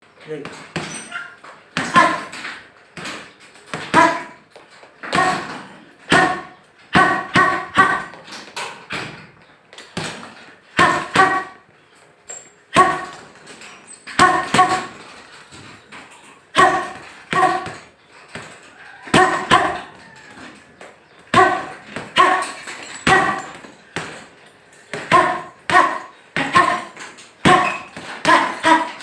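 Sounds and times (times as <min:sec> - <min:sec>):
boxing gloves hitting punching bag: 0:00.5 - 0:04.4, 0:05.0 - 0:08.3, 0:09.8 - 0:11.6, 0:12.7 - 0:15.1, 0:16.5 - 0:20.0, 0:21.2 - 0:29.0.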